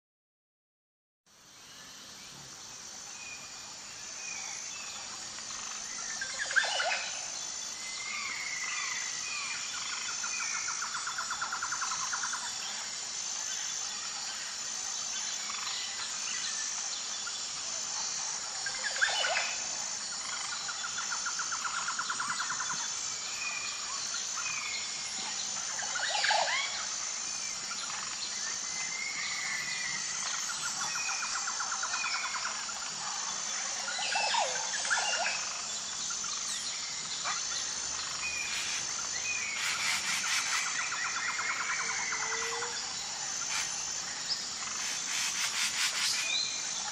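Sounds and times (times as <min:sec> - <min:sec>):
insects chirring: 0:01.3 - 0:46.9
bird chirps and trills: 0:04.3 - 0:12.9, 0:23.5 - 0:46.9
loud rising bird calls: 0:38.2 - 0:41.0.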